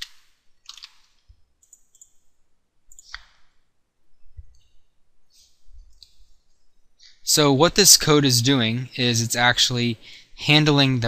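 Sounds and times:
computer mouse clicks: 0:00.0 - 0:02.2, 0:02.9 - 0:03.4.

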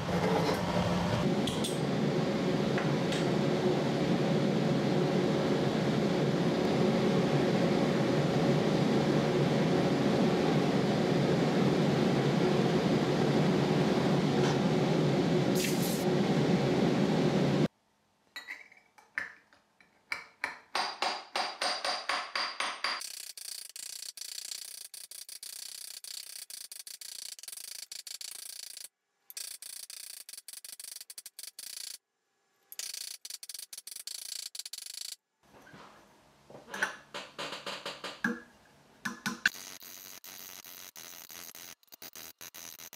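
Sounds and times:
gas torch hissing: 0:15.5 - 0:16.1.

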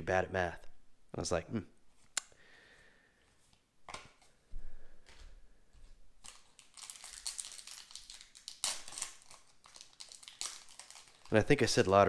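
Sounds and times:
foil wrapper crinkling: 0:06.2 - 0:11.8.

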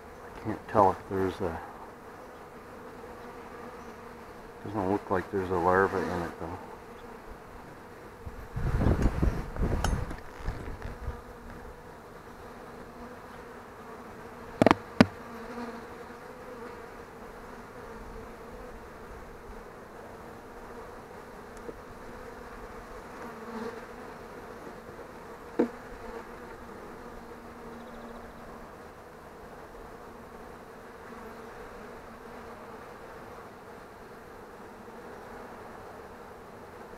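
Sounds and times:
honeybees buzzing: 0:00.0 - 0:36.9
hive tool knocking on frames: 0:14.6 - 0:15.3, 0:25.5 - 0:25.8.

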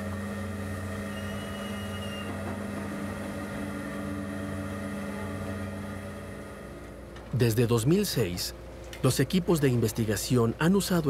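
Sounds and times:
low hum of ship machinery: 0:00.0 - 0:11.0
faint high whistle: 0:00.8 - 0:02.5.

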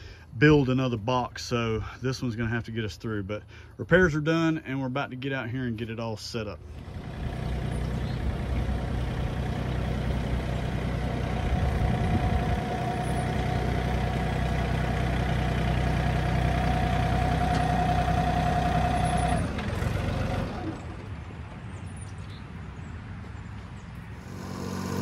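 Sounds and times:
truck engine running: 0:06.6 - 0:21.3, 0:24.2 - 0:25.0
high whine: 0:24.2 - 0:25.0.

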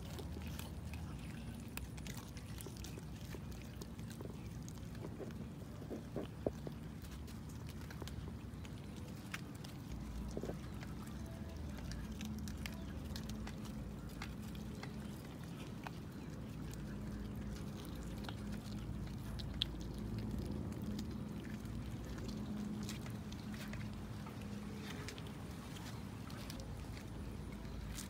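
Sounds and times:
cats chewing fish: 0:00.0 - 0:28.0
steady low hum: 0:00.0 - 0:28.0.

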